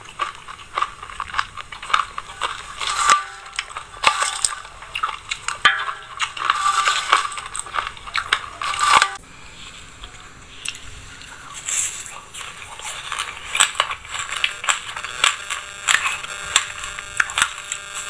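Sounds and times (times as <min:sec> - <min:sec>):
metal bowl ringing: 0:02.9 - 0:04.7, 0:05.6 - 0:07.6
spoon scraping metal bowl: 0:05.6 - 0:09.2.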